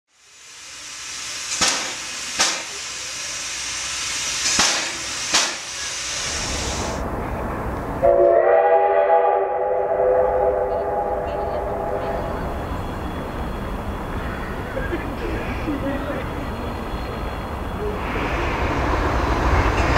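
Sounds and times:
steam locomotive hissing: 0.1 - 19.9
sharp loud beats: 1.5 - 2.8, 4.5 - 5.7
multi-note steam whistle: 8.0 - 14.0.

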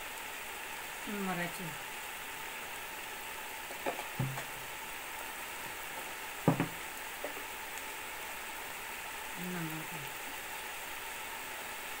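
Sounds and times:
meat sizzling in a pot: 0.0 - 12.0
short knocks: 3.8 - 4.6, 6.4 - 7.4.

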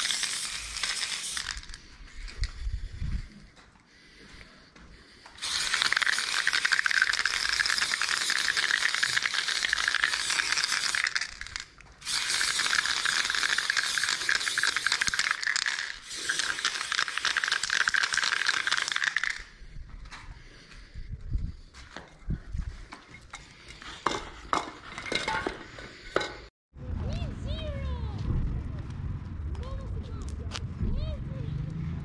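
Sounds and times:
spray paint can spraying: 0.0 - 2.6, 5.4 - 19.5.

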